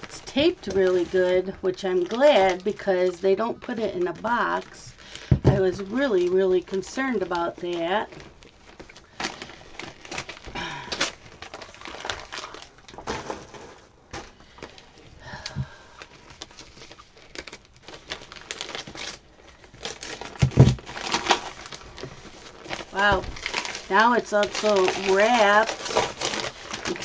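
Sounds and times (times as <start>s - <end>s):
paper and tape crinkling: 0.0s - 27.0s
package thumping on desk: 20.4s - 20.8s.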